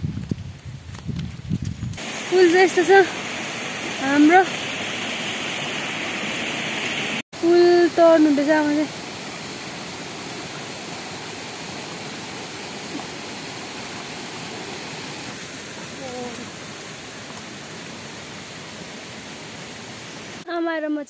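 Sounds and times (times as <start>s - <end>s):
running water: 2.0s - 20.5s.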